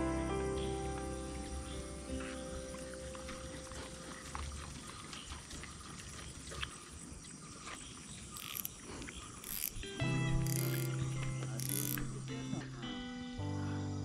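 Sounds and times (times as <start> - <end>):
background music: 0.0 - 4.5, 9.6 - 14.0
footsteps in wet grass: 0.9 - 12.4.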